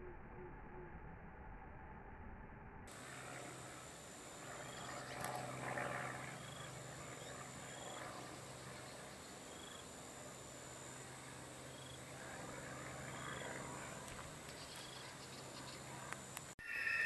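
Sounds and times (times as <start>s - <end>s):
low steady hum: 0.0s - 17.0s
short high chirp: 16.6s - 17.0s.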